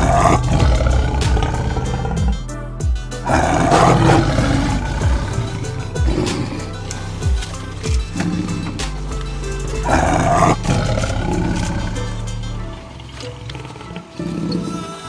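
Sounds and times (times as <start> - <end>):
tiger roar: 0.0 - 2.5, 3.2 - 15.0
low drum thumps: 0.0 - 11.4
background music: 0.0 - 15.0.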